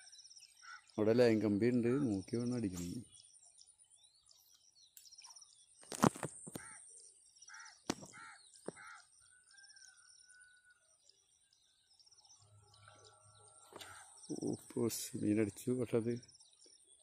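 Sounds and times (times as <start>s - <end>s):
small birds chirping: 0.0s - 17.0s
crow cawing: 0.6s - 0.9s, 6.6s - 6.8s, 7.5s - 9.1s, 13.8s - 14.1s.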